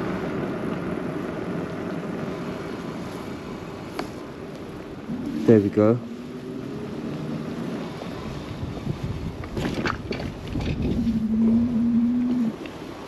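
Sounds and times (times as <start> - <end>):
bicycle tyre rumble on tarmac: 0.0 - 13.0
wind buffeting microphone: 0.0 - 13.0.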